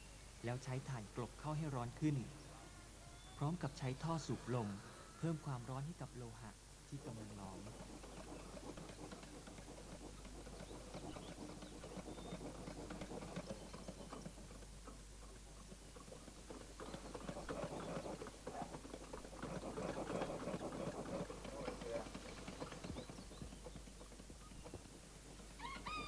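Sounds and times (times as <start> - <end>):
bellows knocking and puffing: 7.2 - 26.0.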